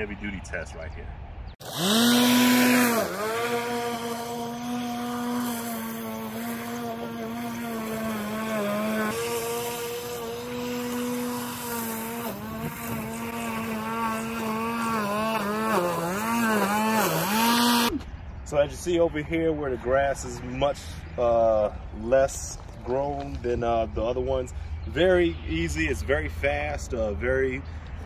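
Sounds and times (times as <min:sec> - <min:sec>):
lawn mower whining: 0:01.6 - 0:17.9.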